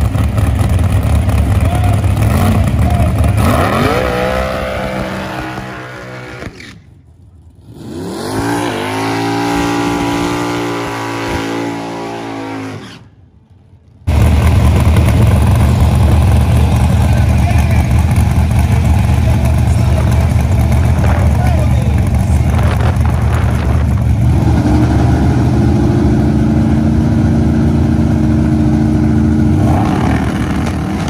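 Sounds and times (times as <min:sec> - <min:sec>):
heavy low rumble: 0:00.0 - 0:07.8, 0:13.2 - 0:31.0
race car engines accelerating: 0:00.0 - 0:13.2, 0:14.0 - 0:31.0.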